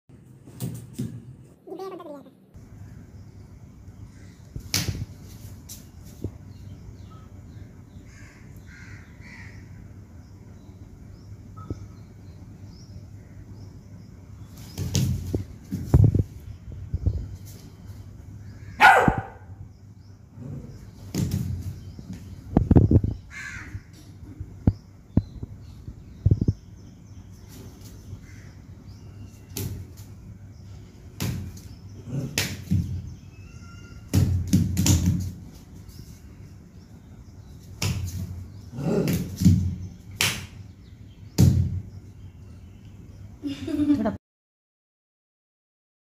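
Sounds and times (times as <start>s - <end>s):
knocks and thumps on tiled floor: 0.5s - 1.4s, 14.7s - 16.2s, 21.0s - 23.1s, 32.4s - 33.1s, 34.1s - 35.4s, 39.1s - 40.4s, 41.4s - 41.8s
puppy barking: 18.8s - 19.5s.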